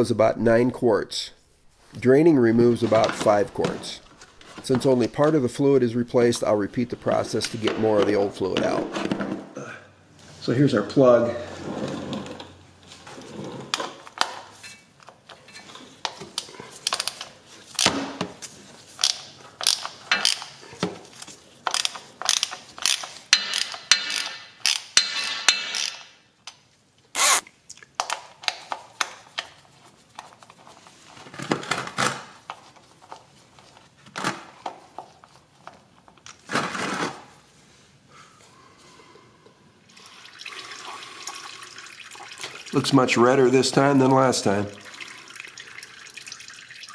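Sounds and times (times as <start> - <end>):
hand ratchet clicking: 19.0 - 20.5, 21.7 - 26.1, 27.2 - 27.4.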